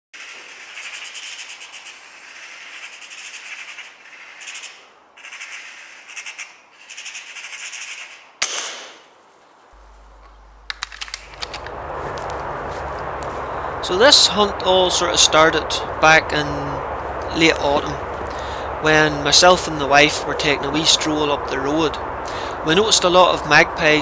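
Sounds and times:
magpie chattering: 0.2 - 8.4
gunshot: 8.4 - 9.0.

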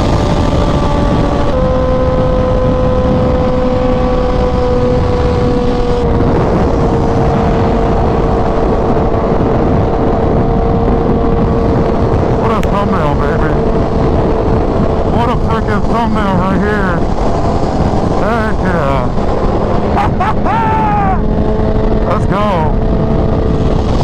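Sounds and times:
motorcycle engine cruising: 0.0 - 24.0
wind rush on microphone: 0.0 - 24.0.

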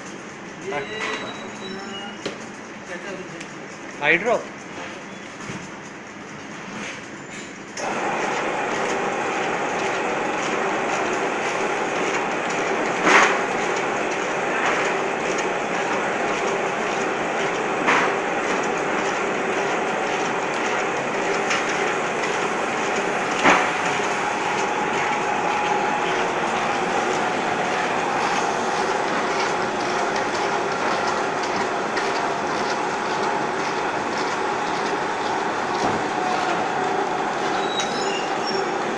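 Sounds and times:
bottling machine clattering: 10.9 - 38.9.

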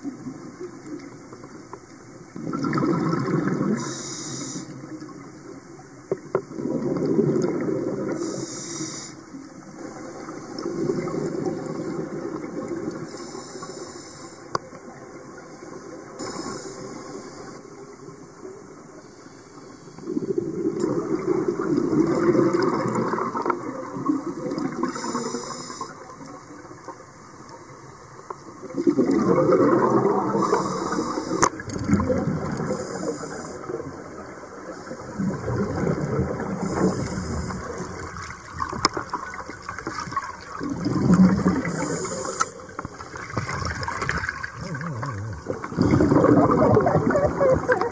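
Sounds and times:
bubbling exhaled air underwater: 2.4 - 5.1, 6.2 - 8.8, 9.9 - 13.3, 20.0 - 26.6, 28.6 - 47.9
regulator hissing inhalation: 3.8 - 4.8, 8.2 - 9.2, 16.2 - 17.6, 24.9 - 26.0, 30.4 - 31.5, 32.6 - 33.7, 36.6 - 37.9, 41.6 - 42.7.

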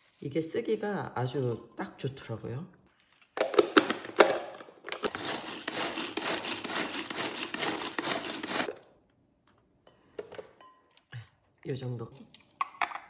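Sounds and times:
food processor grinding: 4.9 - 8.8.

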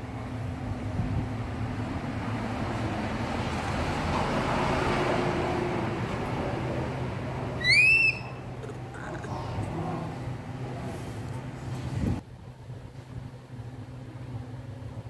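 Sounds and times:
low background hum: 6.2 - 15.0
baby monkey whistle-like call: 7.6 - 8.5.

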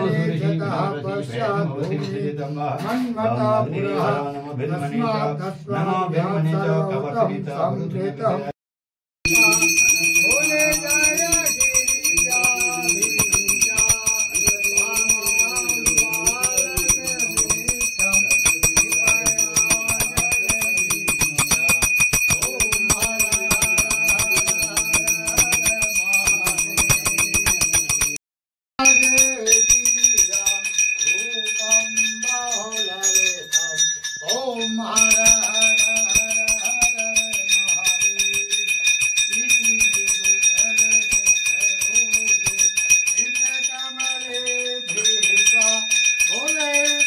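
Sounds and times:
voices singing devotional song: 0.0 - 8.6, 9.3 - 28.0, 28.8 - 47.0
temple bells ringing rapidly: 9.3 - 28.2, 28.8 - 47.0.

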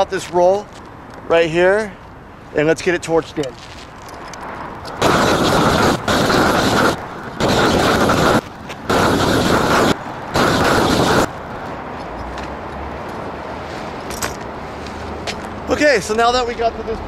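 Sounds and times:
roofing torch roaring: 4.4 - 11.9.

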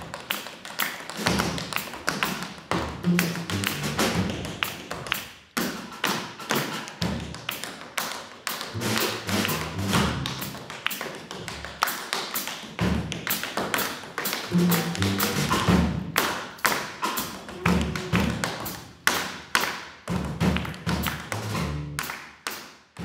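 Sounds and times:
tap shoes on stage floor: 0.0 - 22.7
upright bass playing: 3.0 - 4.4, 8.8 - 10.6, 14.5 - 15.8, 21.4 - 22.0.

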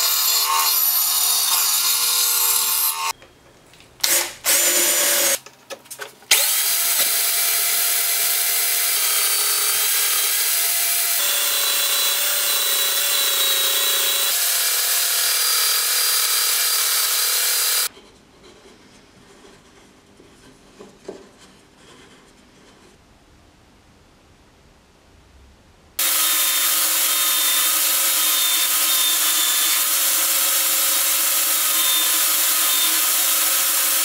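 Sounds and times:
belt sander grinding wood: 26.0 - 34.0.

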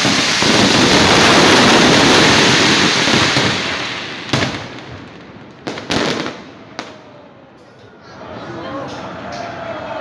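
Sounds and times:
firework bang: 0.0 - 5.0
fireworks crackling: 0.0 - 7.1.

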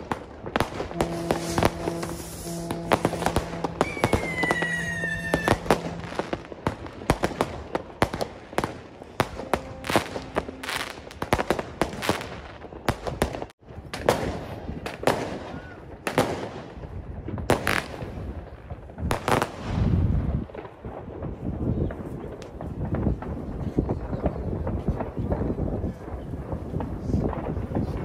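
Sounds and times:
fireworks banging and crackling: 0.0 - 28.0
firework whistle falling: 0.6 - 7.5, 9.2 - 12.3.

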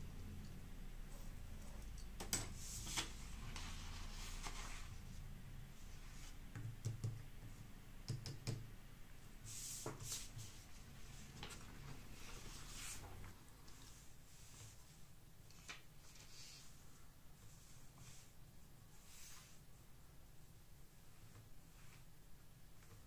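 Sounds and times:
low steady hum: 0.0 - 15.4
paper rustling on cutting mat: 2.6 - 5.0.

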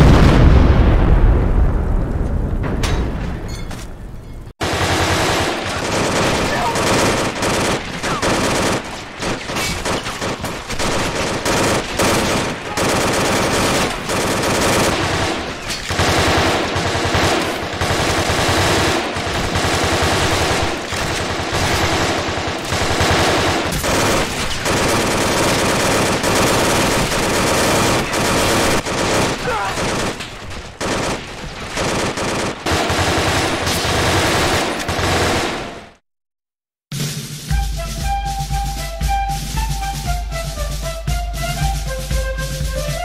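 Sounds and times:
automatic gunfire: 4.6 - 36.0.

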